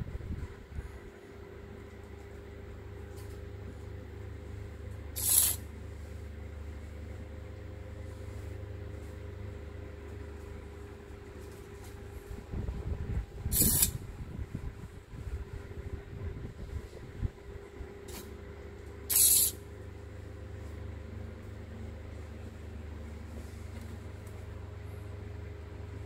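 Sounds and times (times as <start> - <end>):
steady low hum: 0.0 - 26.0
servo motor whirring: 5.2 - 5.6, 13.5 - 14.0, 19.1 - 19.6.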